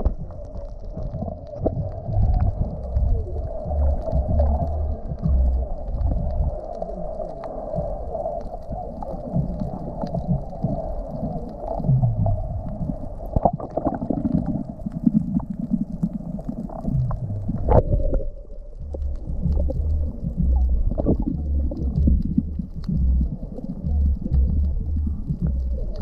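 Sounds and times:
steady hum: 0:00.0 - 0:06.6, 0:16.9 - 0:26.0
clicks and bubble pops: 0:00.0 - 0:26.0
underwater rumbling and gurgling: 0:00.0 - 0:26.0.

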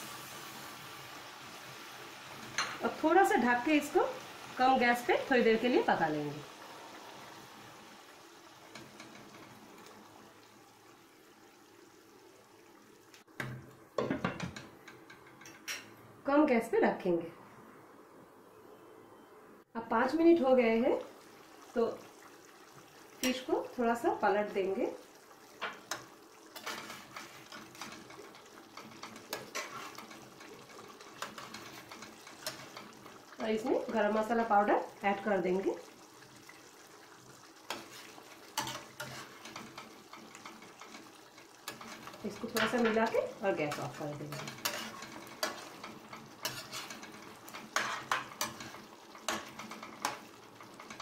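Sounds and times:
gravy simmering: 0:00.0 - 0:16.1, 0:20.2 - 0:51.0
metal spatula scraping a pan: 0:25.6 - 0:34.0, 0:37.7 - 0:51.0.

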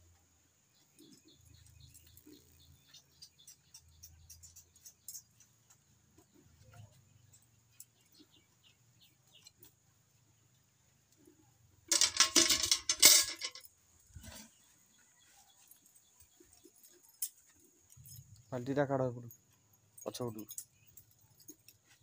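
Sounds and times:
birds chirping: 0:00.6 - 0:11.6, 0:12.9 - 0:22.0
metal pail clattering: 0:11.9 - 0:14.5.

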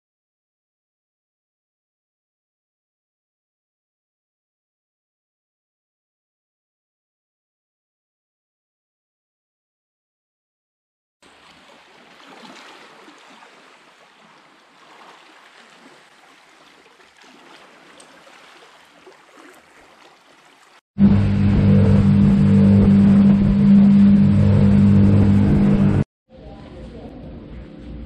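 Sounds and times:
small waves on rocky shore: 0:11.2 - 0:20.8
boat motor running: 0:21.0 - 0:26.1.

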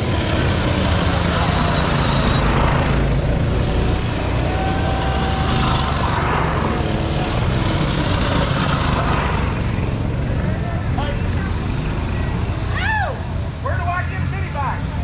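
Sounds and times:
mini bike engines passing: 0:00.0 - 0:13.4.

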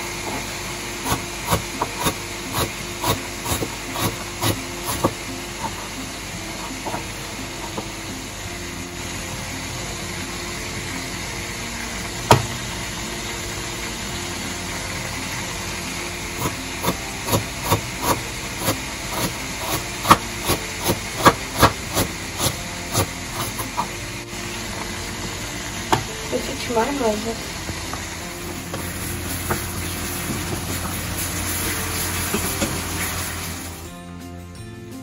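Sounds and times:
knife slicing onion on board: 0:01.0 - 0:05.8, 0:16.4 - 0:23.9.

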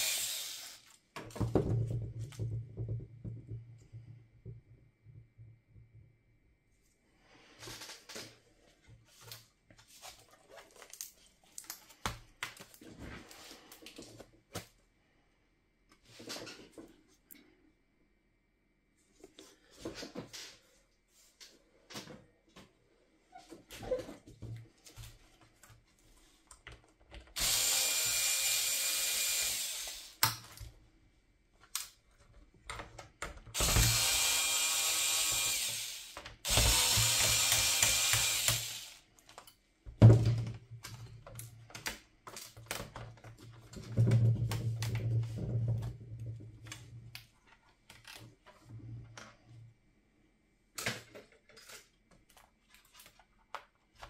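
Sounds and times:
electric screwdriver whining: 0:00.0 - 0:01.0, 0:27.4 - 0:30.2, 0:33.6 - 0:39.0.

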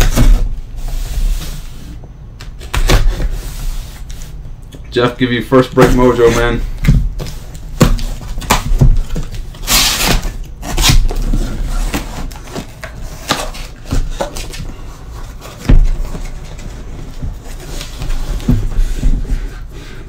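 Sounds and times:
cardboard flaps scraping: 0:05.8 - 0:20.0.

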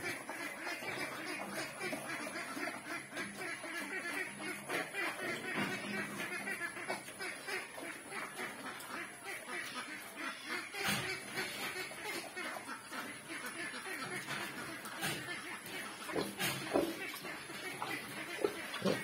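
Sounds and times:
pig chomping: 0:00.0 - 0:19.0
pig grunting: 0:10.4 - 0:19.0.

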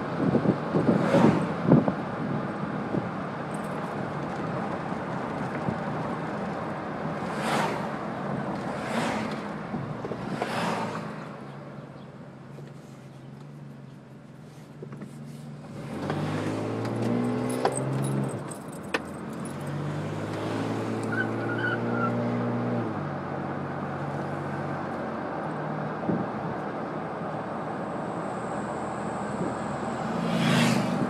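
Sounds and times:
road noise: 0:00.0 - 0:31.0
car engine accelerating: 0:15.6 - 0:27.4, 0:28.3 - 0:31.0.

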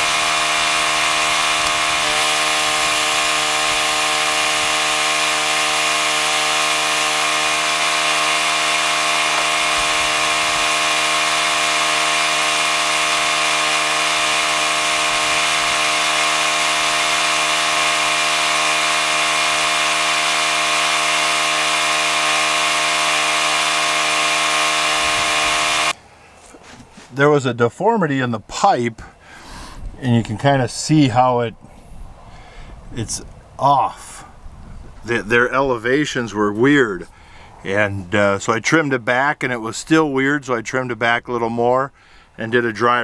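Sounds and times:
machine humming with a whine: 0:00.0 - 0:26.0.

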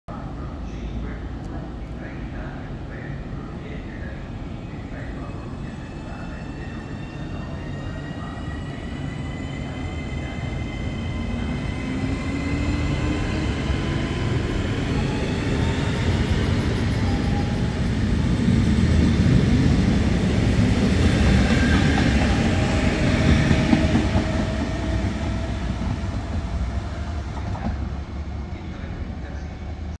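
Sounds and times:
wheels rumbling on rail: 0:11.1 - 0:29.6.

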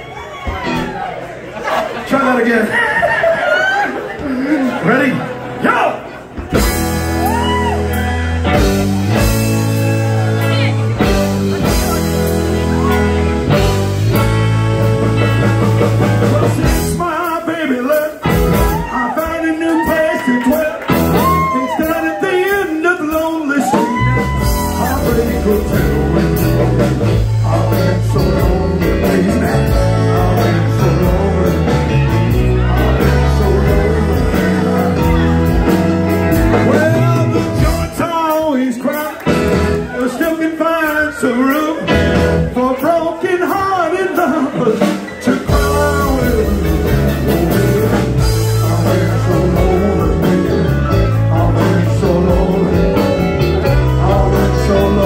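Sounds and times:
live rock band playing: 0:00.0 - 0:02.8, 0:03.4 - 0:55.0
man singing: 0:14.8 - 0:55.0.

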